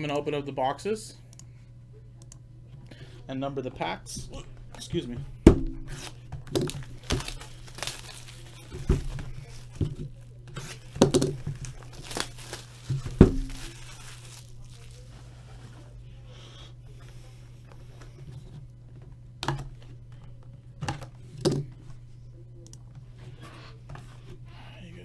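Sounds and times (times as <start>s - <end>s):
steady low hum: 0.0s - 25.0s
plastic shrink-wrap crinkling and tearing: 6.0s - 15.2s.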